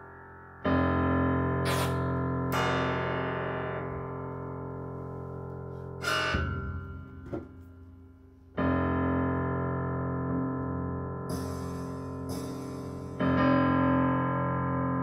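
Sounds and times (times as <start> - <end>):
piano chords ringing: 0.0 - 15.0
sharp struck sound: 6.0 - 7.6, 11.3 - 13.4
small knock: 6.4 - 7.6.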